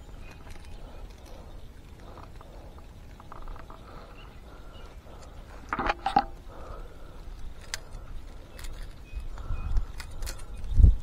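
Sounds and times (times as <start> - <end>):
clattering and scraping: 5.6 - 6.4.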